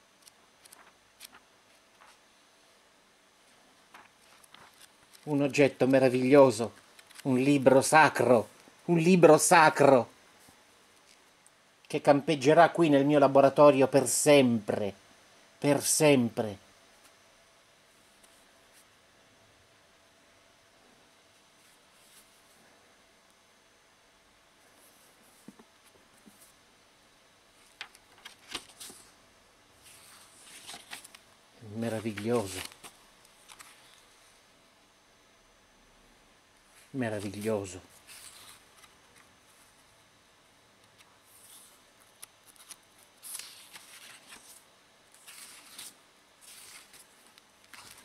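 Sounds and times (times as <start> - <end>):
book pages rustling: 0.2 - 2.3, 3.8 - 7.7, 27.5 - 29.2, 29.8 - 34.1, 37.0 - 39.8, 40.9 - 48.0.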